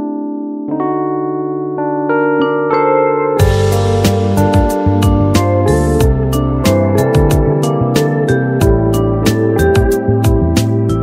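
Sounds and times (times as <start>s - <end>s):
low bass note: 3.4s - 6.6s
slow sustained chords: 3.4s - 9.2s.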